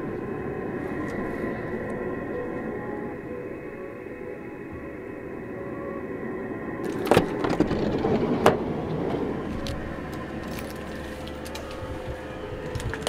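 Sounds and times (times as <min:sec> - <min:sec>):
steady low hum: 0:00.0 - 0:13.0
sliding door rattle: 0:06.8 - 0:12.1.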